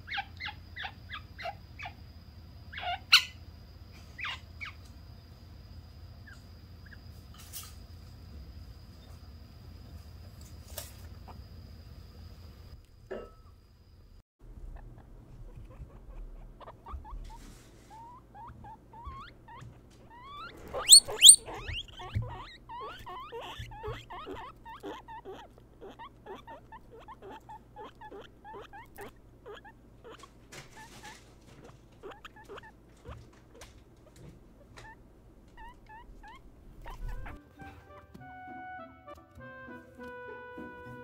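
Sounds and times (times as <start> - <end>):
guinea pig rising squeal: 0.0 - 2.0, 2.7 - 3.4, 4.2 - 4.8, 14.7 - 38.0
guinea pigs squeaking: 0.0 - 2.0, 2.7 - 3.4, 4.2 - 4.8, 14.6 - 38.2.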